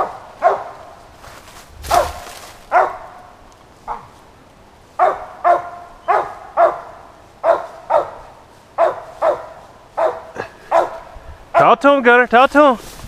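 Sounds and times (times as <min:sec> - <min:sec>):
dog barking: 0:00.0 - 0:00.9, 0:01.9 - 0:03.3, 0:03.9 - 0:04.2, 0:05.0 - 0:11.8.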